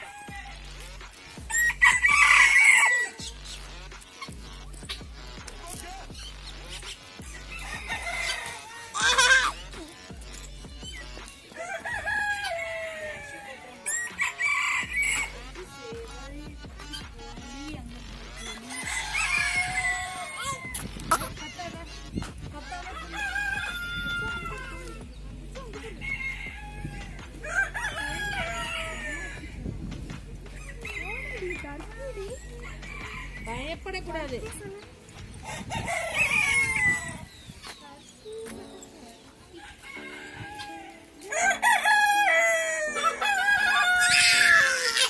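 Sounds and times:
rooster crowing: 0:00.0 - 0:00.6, 0:01.5 - 0:03.2, 0:07.4 - 0:09.4, 0:11.5 - 0:15.3, 0:18.6 - 0:20.7, 0:22.9 - 0:24.6, 0:35.4 - 0:37.3, 0:39.6 - 0:45.0.

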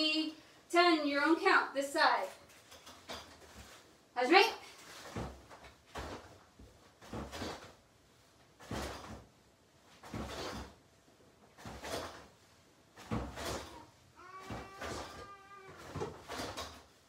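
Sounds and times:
soft thump of movement: 0:04.8 - 0:07.8.

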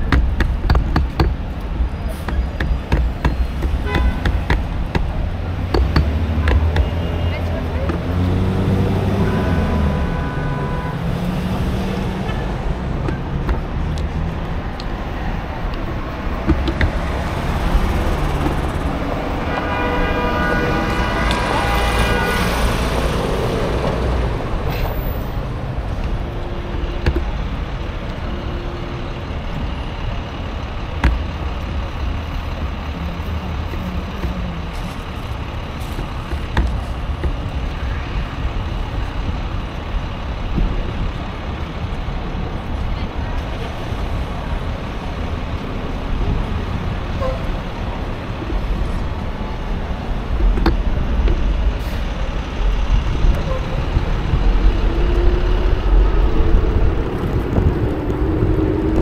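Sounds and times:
street traffic rumble: 0:00.0 - 0:59.0
vehicle horn: 0:03.8 - 0:04.5, 0:08.9 - 0:11.2, 0:19.0 - 0:23.0, 0:47.1 - 0:47.5, 0:53.3 - 0:53.9.

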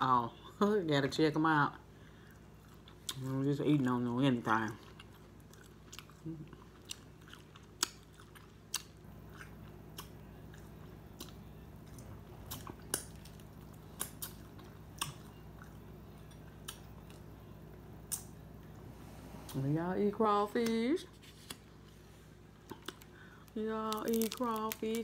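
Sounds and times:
chewing: 0:02.2 - 0:03.4, 0:04.4 - 0:17.4.

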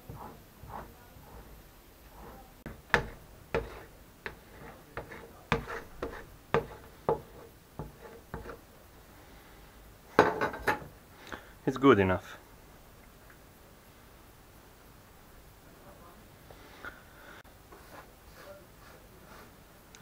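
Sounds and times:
metal scraper scraping wax: 0:00.0 - 0:08.6.

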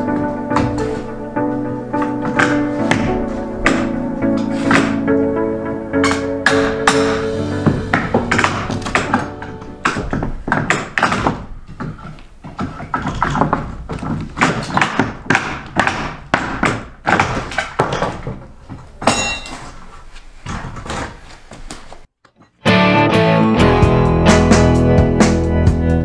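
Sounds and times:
wooden floorboards knocking: 0:00.0 - 0:05.4, 0:06.0 - 0:19.2.

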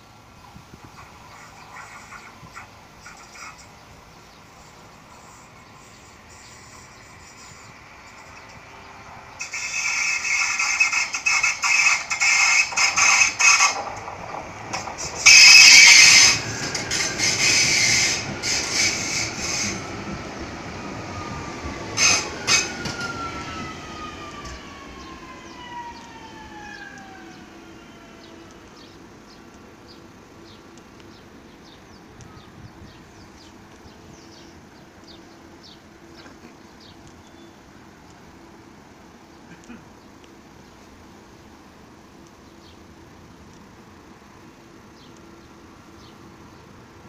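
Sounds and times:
wheels clicking over rail joints: 0:06.8 - 0:27.4
traction motor whine: 0:09.4 - 0:29.0.

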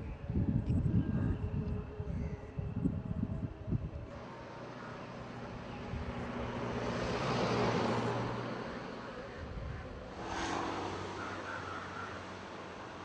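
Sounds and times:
low engine hum: 0:02.7 - 0:13.0
motor vehicle passing: 0:04.9 - 0:09.4, 0:10.0 - 0:13.0.

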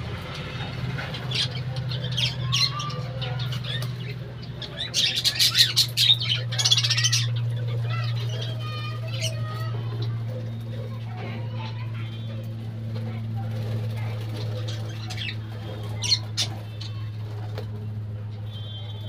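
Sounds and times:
budgerigars chattering and chirping: 0:00.5 - 0:12.4, 0:13.4 - 0:17.6
wings flapping: 0:07.2 - 0:19.0.

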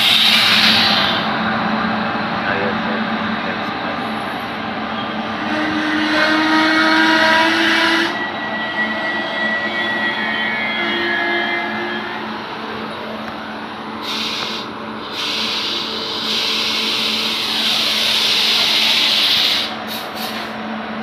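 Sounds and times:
loud hiss: 0:00.0 - 0:01.3, 0:14.0 - 0:20.5
train wheels rumbling on rails: 0:00.0 - 0:21.0.

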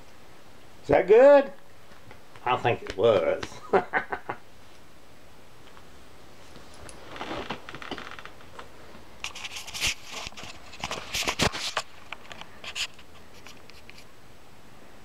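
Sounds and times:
camera handling rustling: 0:09.2 - 0:14.0.

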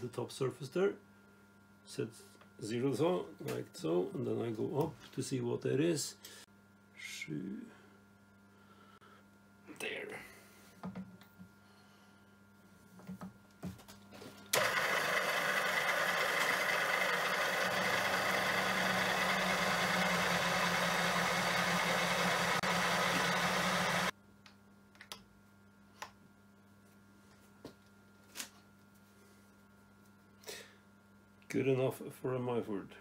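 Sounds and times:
pillar drill cutting metal: 0:14.6 - 0:24.1.

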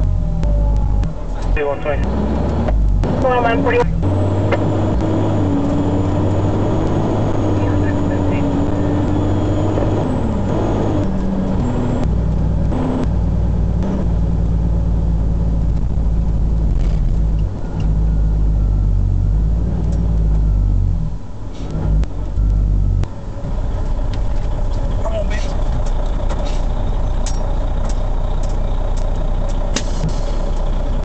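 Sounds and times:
diesel truck engine droning: 0:00.0 - 0:31.0.

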